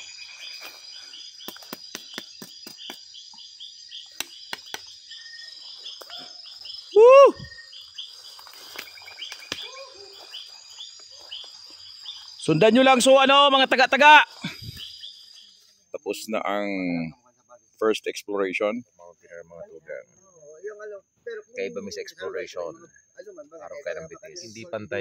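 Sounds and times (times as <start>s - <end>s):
footsteps through undergrowth: 0.0s - 2.9s, 5.4s - 12.7s
cricket trill: 0.0s - 25.0s
fast pulsed insect chirping: 0.0s - 25.0s.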